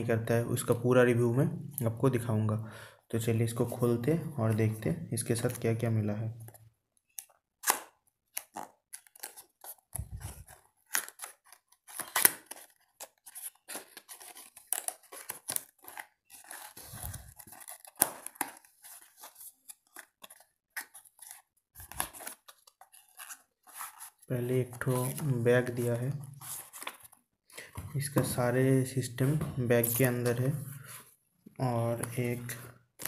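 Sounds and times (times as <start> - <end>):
packaging crinkling and scraping: 8.2 - 27.2.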